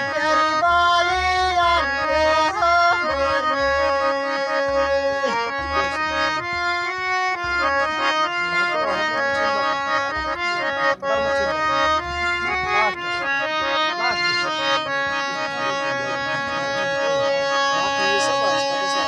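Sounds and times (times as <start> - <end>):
harmonium chords: 0.0 - 19.0.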